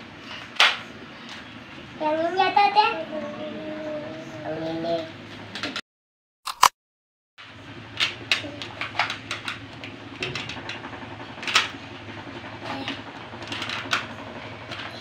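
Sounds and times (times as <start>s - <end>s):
steady low hum: 7.4s - 15.0s
plastic toys clicking and rattling: 7.9s - 11.8s, 12.5s - 15.0s.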